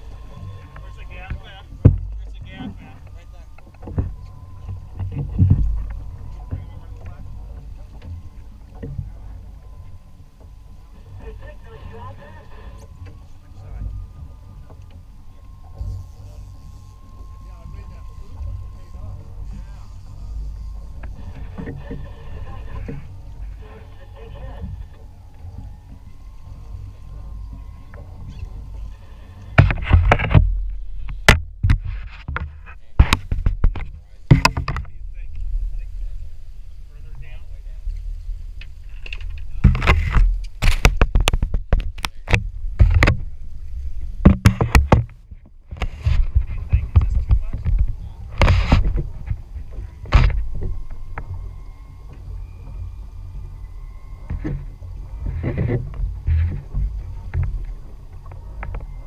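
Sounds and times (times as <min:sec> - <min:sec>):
knocks and clatter of gear: 0:00.0 - 0:12.1, 0:24.2 - 0:35.7, 0:37.2 - 0:59.0
low rumble of boat: 0:00.0 - 0:59.0.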